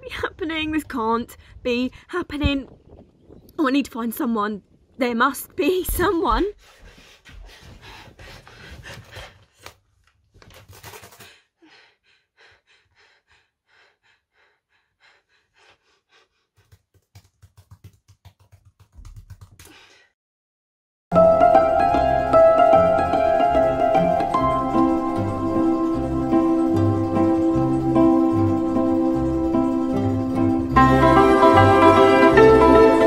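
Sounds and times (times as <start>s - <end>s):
quick gasping breaths: 6.6s - 9.8s, 11.0s - 16.9s, 19.6s - 20.2s
laptop keyboard typing: 16.6s - 19.8s.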